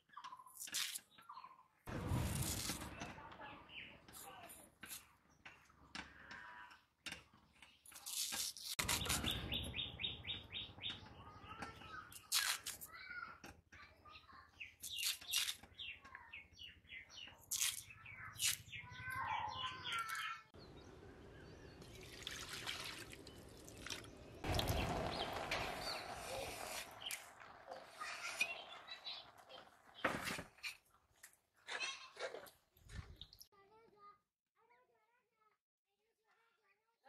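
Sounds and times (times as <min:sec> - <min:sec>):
small birds chirping: 0:03.4 - 0:30.7.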